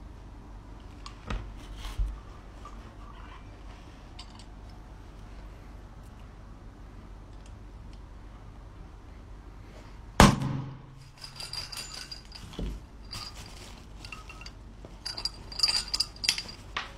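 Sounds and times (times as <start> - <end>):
metallic latch clinks: 14.0 - 16.9.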